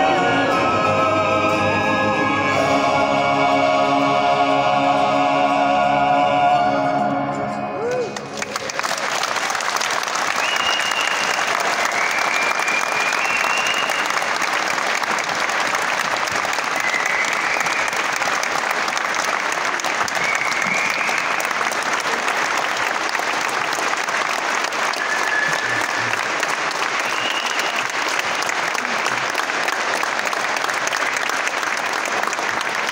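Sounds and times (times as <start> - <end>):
audience applauding: 7.8 - 32.9.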